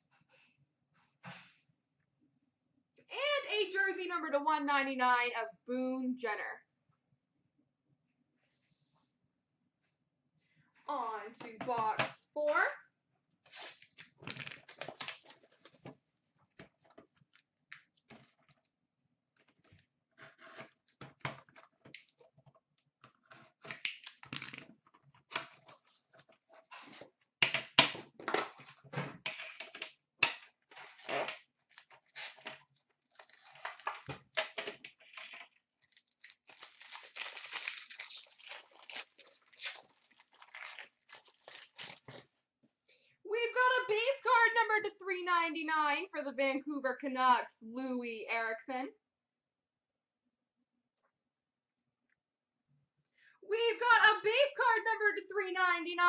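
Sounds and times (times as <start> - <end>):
plastic wrapping crinkling: 13.7 - 15.9, 30.7 - 34.4, 35.0 - 42.2.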